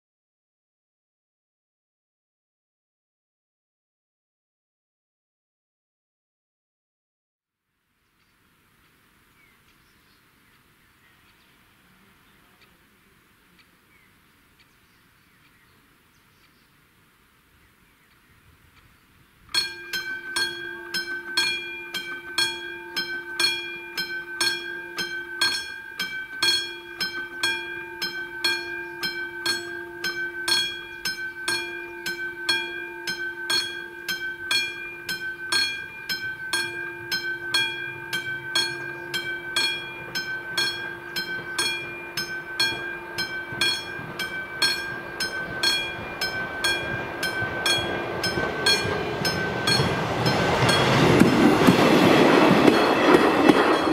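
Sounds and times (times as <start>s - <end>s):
level-crossing warning bell ringing: 19.6s - 53.9s.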